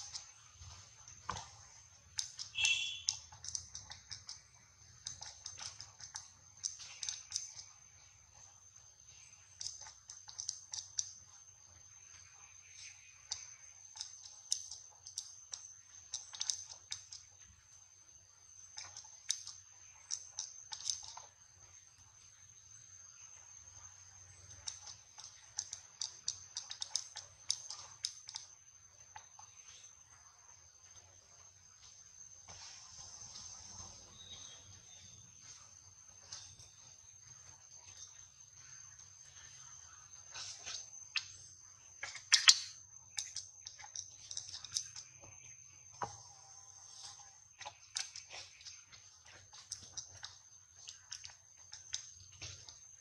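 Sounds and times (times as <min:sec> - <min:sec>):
soft clicks of monkey grooming: 0:01.2 - 0:07.8, 0:09.5 - 0:11.9, 0:12.7 - 0:17.5, 0:18.6 - 0:21.4, 0:24.4 - 0:30.0
monkey lip smacks and wet clicks: 0:42.0 - 0:45.0.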